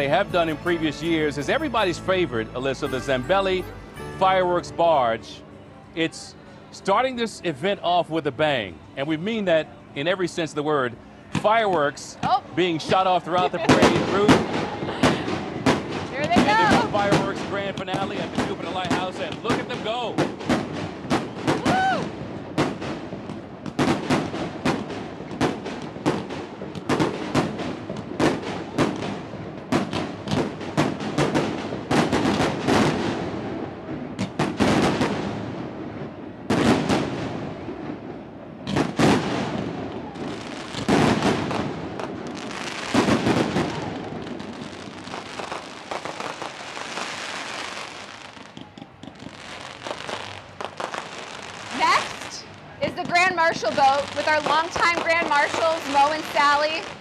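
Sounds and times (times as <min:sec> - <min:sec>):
fireworks crackling: 0:00.0 - 0:05.4, 0:11.4 - 0:57.0
fireworks bursting: 0:12.3 - 0:57.0
heavy fireworks booms: 0:12.8 - 0:57.0.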